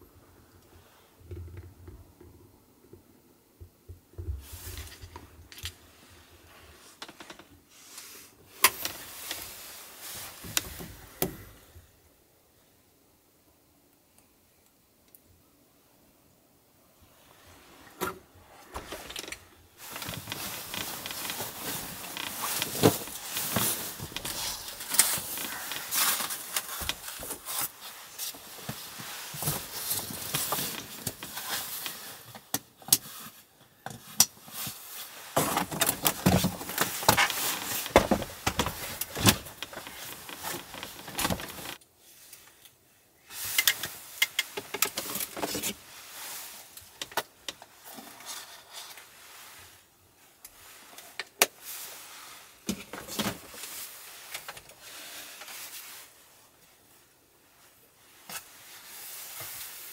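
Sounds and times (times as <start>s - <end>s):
fabric bedding rustling: 7.7s - 11.2s, 17.2s - 32.2s, 34.7s - 41.8s, 53.3s - 59.9s.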